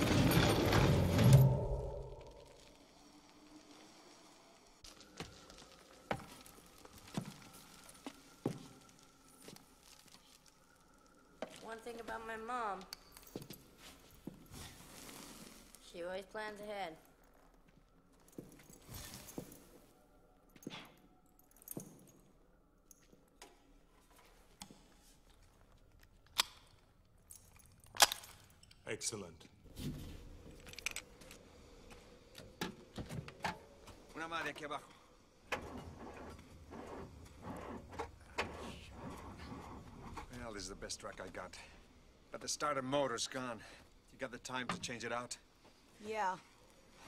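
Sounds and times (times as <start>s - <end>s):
firearms clicking and clanking: 26.2s - 28.8s.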